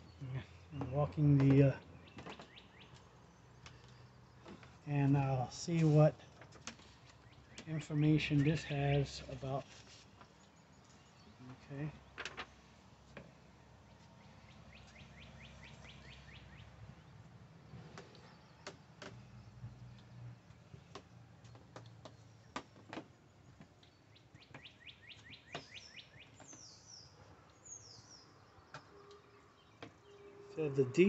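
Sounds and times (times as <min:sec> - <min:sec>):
songbird trilling and whistling: 0:24.6 - 0:27.1.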